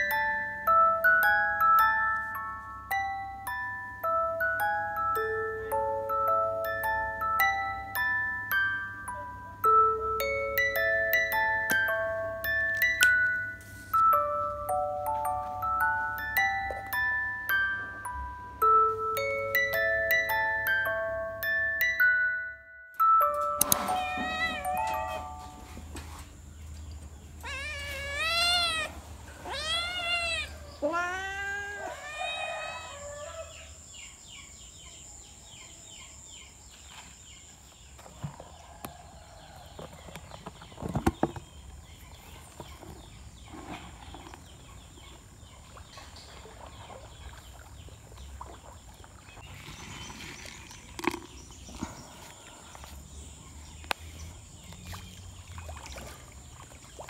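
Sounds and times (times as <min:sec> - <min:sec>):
cat meowing: 0:23.8 - 0:25.2, 0:27.4 - 0:32.4.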